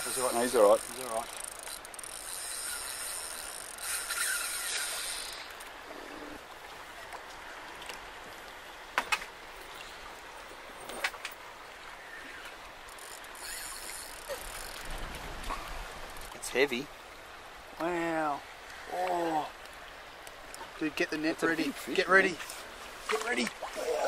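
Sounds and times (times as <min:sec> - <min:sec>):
spinning reel ticking and winding: 0:00.0 - 0:05.5, 0:12.9 - 0:14.9
water lapping: 0:00.0 - 0:24.0.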